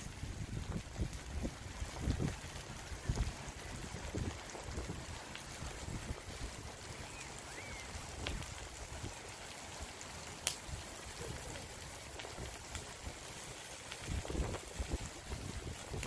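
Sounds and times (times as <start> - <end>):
wind buffeting microphone: 0.0 - 9.2, 10.6 - 16.0
steady hiss: 0.0 - 16.0
faint bird chirp: 7.0 - 7.9.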